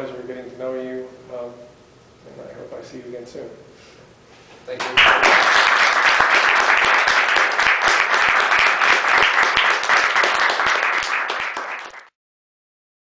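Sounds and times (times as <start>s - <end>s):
audience applauding: 4.8s - 12.2s.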